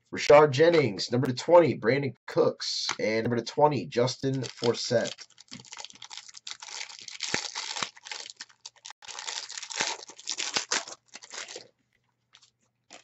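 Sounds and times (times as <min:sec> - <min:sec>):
plastic wrapper crinkling and tearing: 0:04.3 - 0:13.0.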